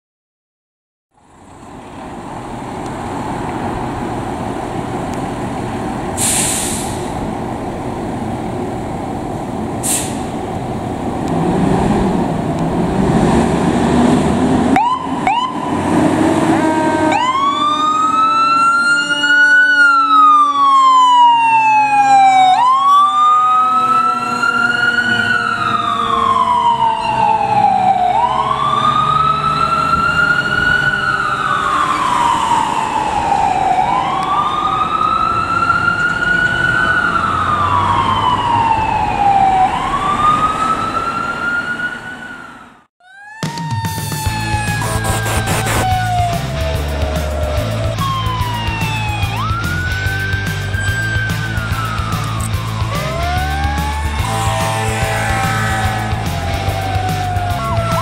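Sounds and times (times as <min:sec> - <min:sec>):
diesel engine running: 0:01.2 - 0:14.8, 0:44.4 - 0:58.0
short air hisses: 0:06.2 - 0:07.2, 0:09.8 - 0:10.4
siren chirps: 0:14.7 - 0:58.0
siren wailing: 0:14.7 - 0:58.0.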